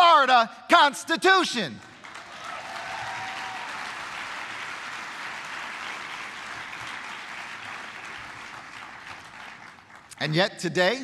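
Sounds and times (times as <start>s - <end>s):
audience applauding: 1.8s - 10.4s.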